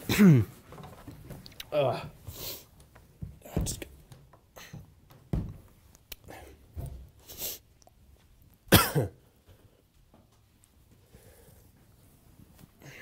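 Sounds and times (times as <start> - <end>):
bumps and shuffling: 0.0 - 8.7.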